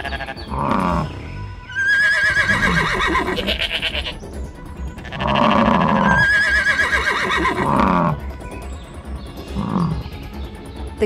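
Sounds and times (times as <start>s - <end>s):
background music with steady beat: 0.0s - 11.0s
cartoon whinny-like calls: 1.7s - 3.6s.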